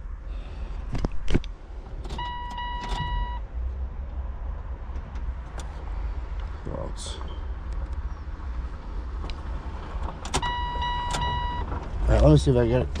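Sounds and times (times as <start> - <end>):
electronic beep tone: 10.5 - 11.7.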